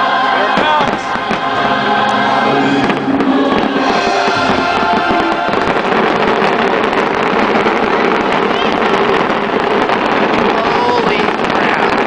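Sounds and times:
show music with held notes: 0.0 - 9.4
fireworks banging and crackling: 0.0 - 12.0.

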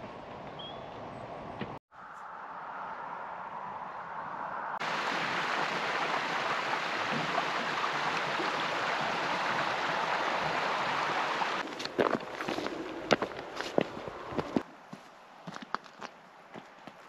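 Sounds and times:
stream water rushing: 4.8 - 14.6.

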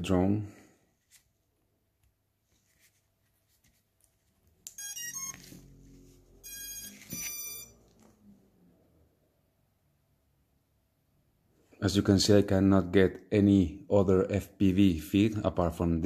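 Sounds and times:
drone motor power-up beeps: 6.4 - 7.7.

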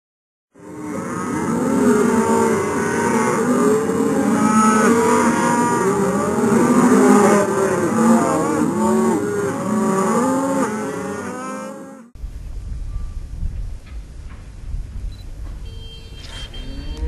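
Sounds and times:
cattle mooing: 0.6 - 12.1, 16.2 - 17.0.

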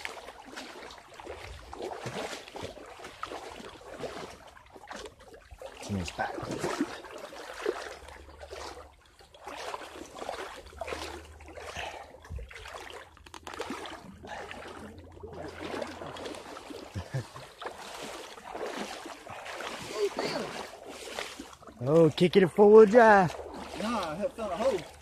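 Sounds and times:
footsteps wading through water: 0.0 - 25.0.

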